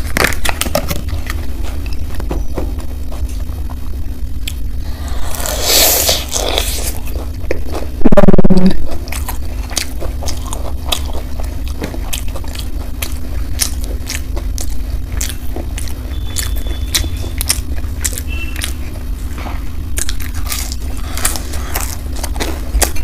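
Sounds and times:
crunchy chewing: 0.0 - 8.0, 8.7 - 23.0
steady low hum: 0.0 - 23.0.

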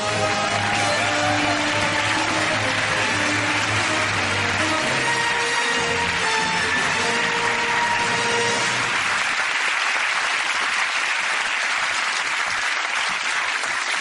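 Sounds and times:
music: 0.0 - 9.5
audience applauding: 0.0 - 14.0.

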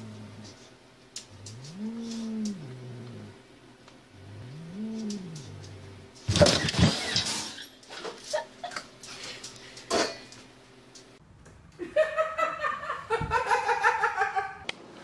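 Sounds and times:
woman laughing: 8.2 - 8.9, 11.8 - 14.6.

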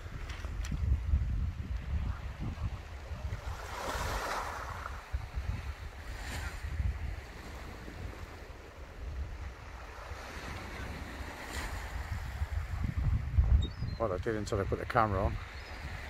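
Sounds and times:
wind buffeting microphone: 0.0 - 16.0
waves washing on shingle: 2.2 - 8.7, 9.4 - 12.7.

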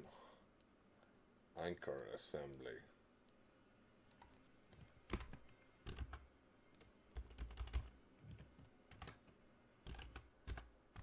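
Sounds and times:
typing on computer keyboard: 4.7 - 6.2, 6.8 - 9.2, 9.8 - 11.0.

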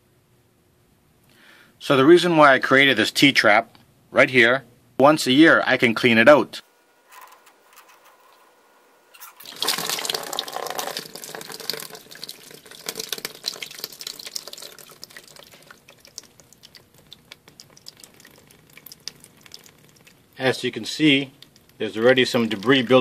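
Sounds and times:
water splashing into plastic bucket: 9.2 - 20.4
water dripping: 9.2 - 23.0.

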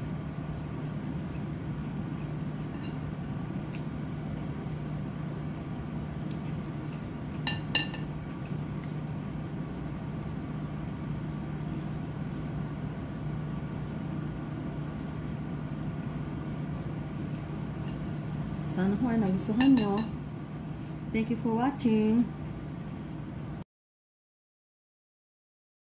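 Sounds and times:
room machinery hum: 0.0 - 23.6
tableware clinking: 7.4 - 8.1, 19.5 - 20.1.

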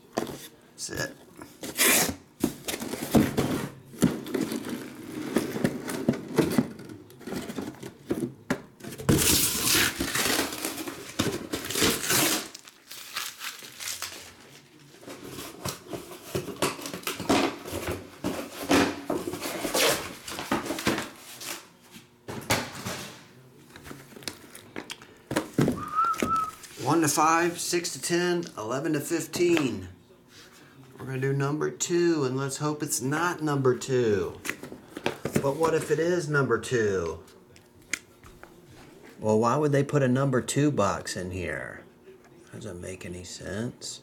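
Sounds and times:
cardboard rustling and scraping: 1.6 - 12.6, 14.0 - 23.2
plastic crinkling: 9.3 - 14.9.

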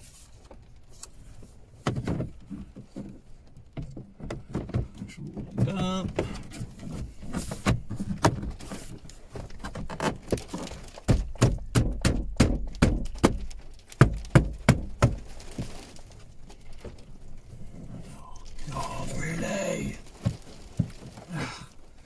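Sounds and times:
dull thuds: 1.8 - 22.0.

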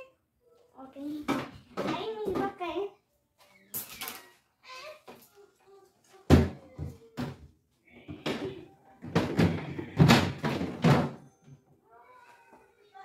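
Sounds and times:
refrigerator shelves knocking: 8.3 - 11.2.

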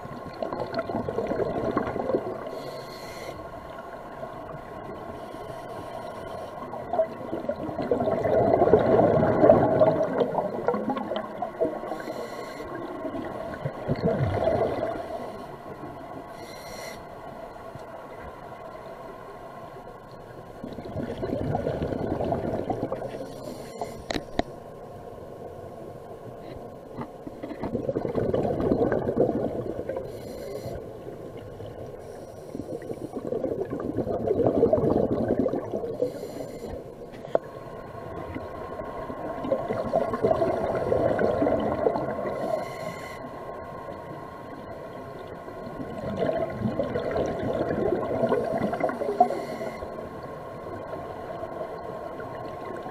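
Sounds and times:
exhaled bubbles rumbling: 0.0 - 2.6, 6.6 - 12.1, 12.7 - 16.2, 20.6 - 23.3, 27.2 - 30.2, 31.0 - 36.2, 37.3 - 42.6, 43.9 - 52.9
regulator inhalation hiss: 2.5 - 3.4, 11.9 - 12.9, 16.3 - 17.1, 30.1 - 30.8, 36.0 - 36.9, 42.4 - 43.3, 49.1 - 49.9.

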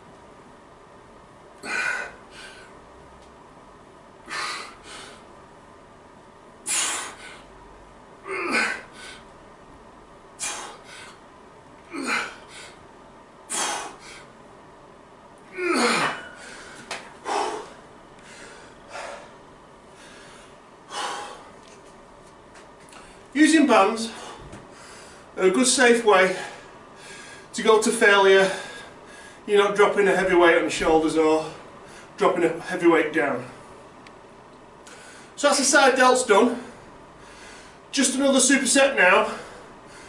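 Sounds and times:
man exhaling forcefully: 1.6 - 2.7, 4.3 - 5.2, 6.6 - 7.5, 8.3 - 9.2, 10.4 - 11.2, 11.9 - 12.8, 13.5 - 14.3, 15.5 - 19.4, 20.0 - 21.5
man grunting: 8.3 - 8.9, 11.9 - 12.4, 15.5 - 16.4.

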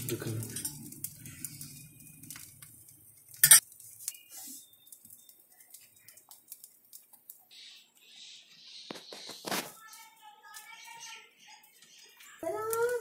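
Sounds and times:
metal vessel clinking on tray: 3.4 - 3.6.

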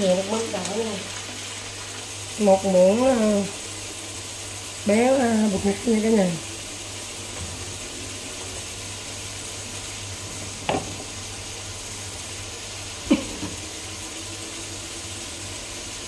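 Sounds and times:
food sizzling in a frying pan: 0.0 - 16.0.

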